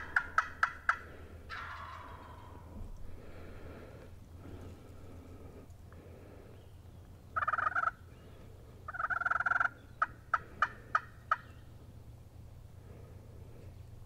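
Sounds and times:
turkey gobbling: 0.0s - 2.8s, 7.3s - 8.0s, 8.8s - 11.6s.

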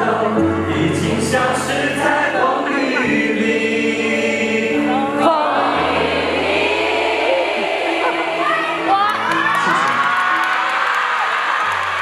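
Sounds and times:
audience singing along: 0.0s - 12.0s
backing track music: 0.0s - 12.0s.

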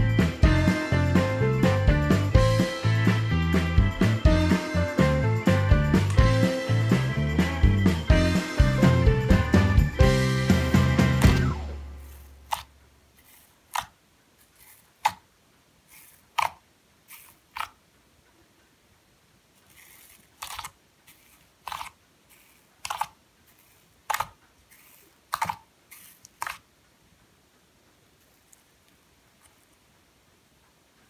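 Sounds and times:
fingers squishing sticky slime: 12.1s - 15.3s, 15.9s - 17.8s, 19.7s - 26.7s.

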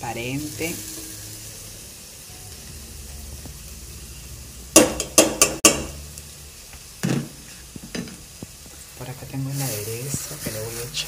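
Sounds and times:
onion frying in a pot: 0.0s - 11.0s
metal spoon stirring: 0.1s - 2.0s
spoon clanking against pot: 4.8s - 5.9s.

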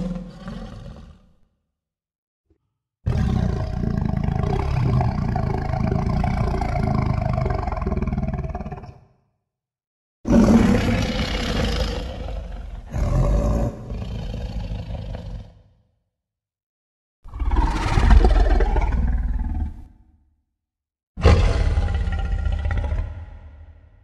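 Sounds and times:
dinosaur roar: 0.0s - 1.4s, 3.1s - 9.0s, 10.3s - 15.7s, 17.3s - 20.0s, 21.2s - 24.0s.

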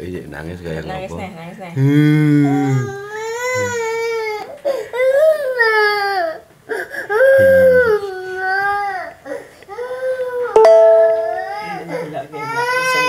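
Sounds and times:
toddler crying: 2.4s - 10.6s, 11.4s - 13.0s.

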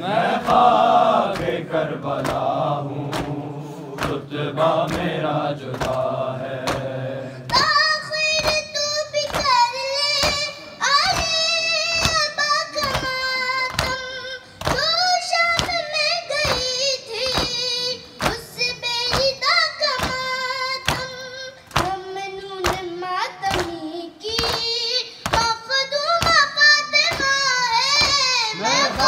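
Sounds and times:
chest beating slaps: 0.4s - 7.8s, 24.4s - 29.0s
boy chanting into microphone: 7.2s - 29.0s.

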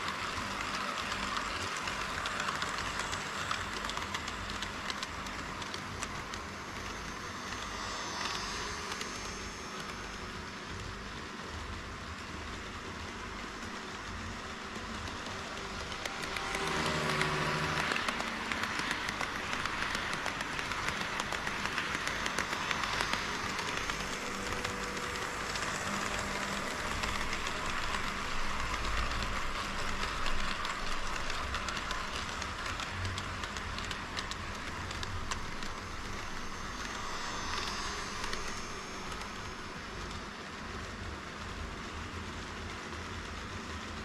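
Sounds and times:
model trains rolling rattle: 0.0s - 44.0s.

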